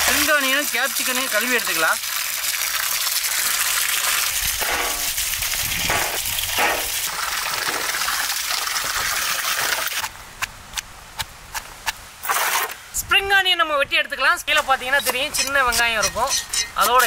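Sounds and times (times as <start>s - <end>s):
running water gushing into pot: 0.0s - 10.0s.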